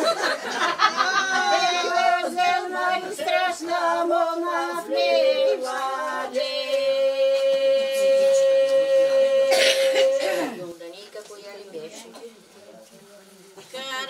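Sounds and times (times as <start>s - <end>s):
women singing unaccompanied: 0.5s - 10.8s.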